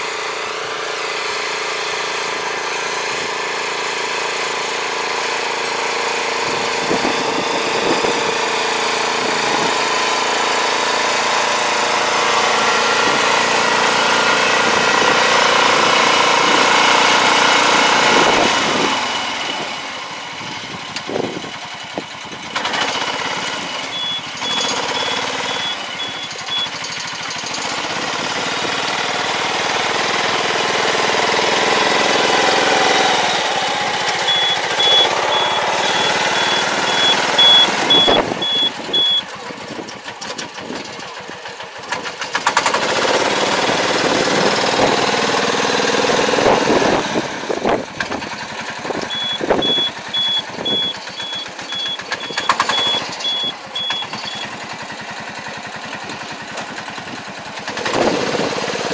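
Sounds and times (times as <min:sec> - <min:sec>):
small farm machine engine running: 0:00.0 - 0:58.9
reversing alarm beeping: 0:23.8 - 0:26.8, 0:33.2 - 0:39.3, 0:49.1 - 0:54.6.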